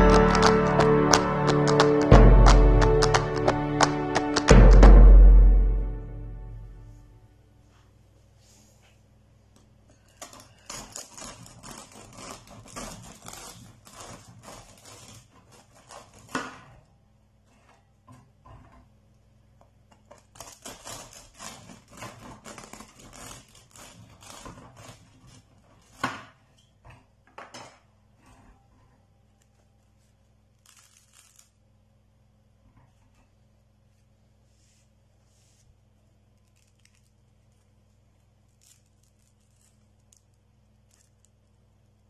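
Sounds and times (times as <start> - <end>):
knife sawing through bread: 10.2 - 16.8, 20.4 - 26.0.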